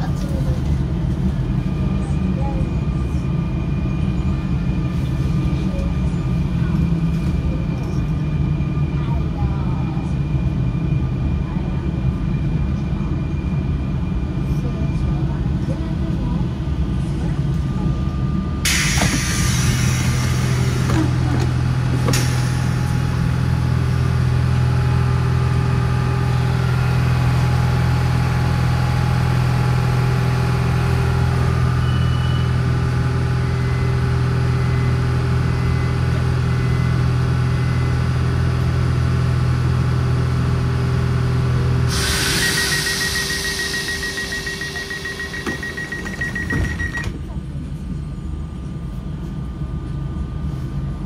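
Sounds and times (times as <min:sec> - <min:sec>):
train electrical hum: 0:00.0 - 0:51.0
hiss: 0:41.9 - 0:43.9
rapid high-pitched beeping: 0:42.4 - 0:47.0.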